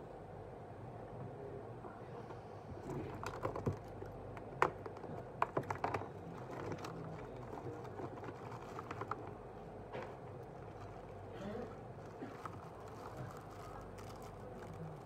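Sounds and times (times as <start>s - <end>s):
steady low hum: 0.0s - 15.0s
plastic bag crinkling: 3.1s - 15.0s.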